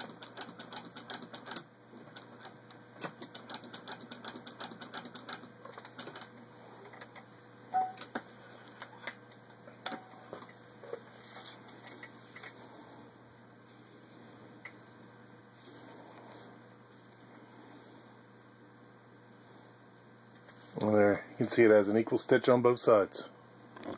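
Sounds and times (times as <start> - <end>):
sewing machine clicking: 0.0 - 6.3.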